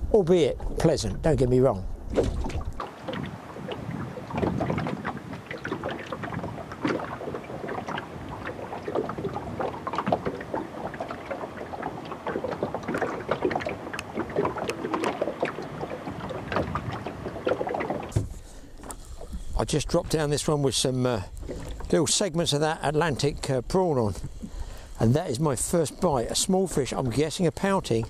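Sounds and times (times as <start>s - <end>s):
wind on microphone: 0.0s - 18.4s
waves slapping boat hull: 0.0s - 28.0s.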